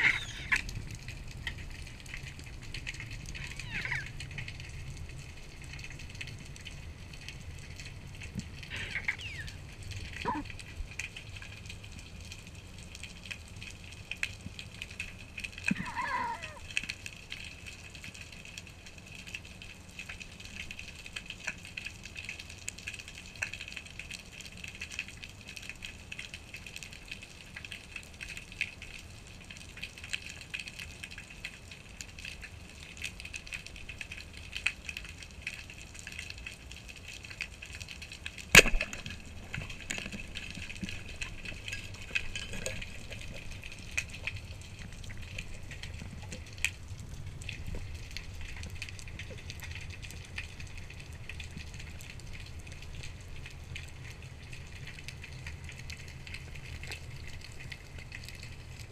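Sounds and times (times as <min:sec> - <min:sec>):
underwater clicking crackle: 0:00.0 - 0:58.9
speargun firing: 0:38.6 - 0:39.0.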